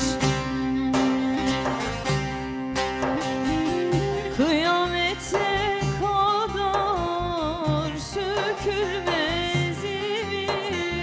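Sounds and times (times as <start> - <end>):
plucked lute accompaniment: 0.0 - 11.0
woman singing folk song: 0.0 - 11.0.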